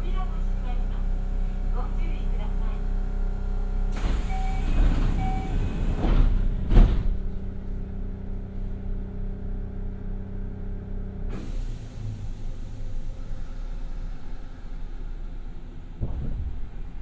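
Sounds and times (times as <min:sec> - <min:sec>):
train electrical hum: 0:00.0 - 0:17.0
train doors sliding shut: 0:03.9 - 0:07.4, 0:11.3 - 0:12.5
short beeps: 0:04.3 - 0:05.5.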